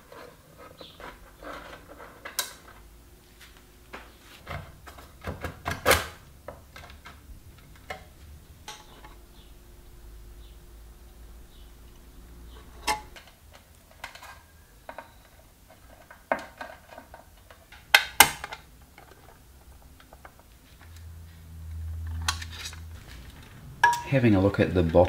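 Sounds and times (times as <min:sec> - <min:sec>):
low hum: 0:06.2 - 0:13.4, 0:19.3 - 0:24.9.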